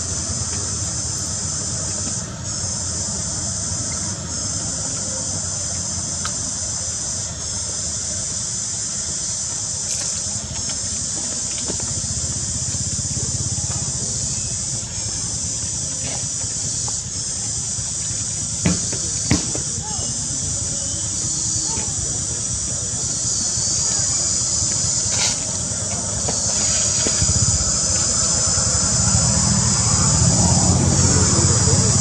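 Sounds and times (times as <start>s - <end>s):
insect chorus droning: 0.0s - 32.0s
low steady rumble: 20.2s - 32.0s.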